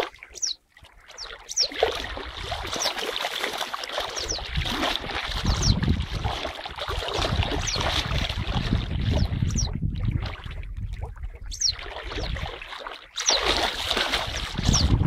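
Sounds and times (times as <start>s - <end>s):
water sloshing and splashing: 0.0s - 15.0s
wind rumble on microphone: 4.2s - 12.7s, 13.4s - 15.0s.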